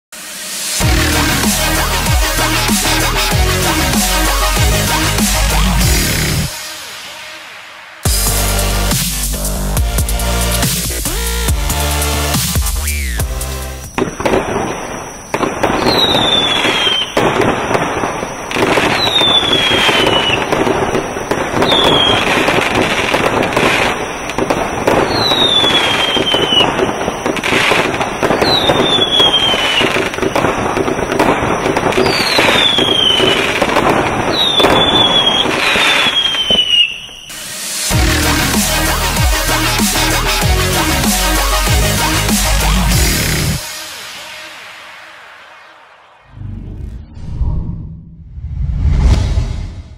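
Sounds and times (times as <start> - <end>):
whistling fireworks: 0.1 - 9.6, 10.3 - 47.2
fireworks popping and crackling: 10.3 - 40.3, 41.3 - 46.3.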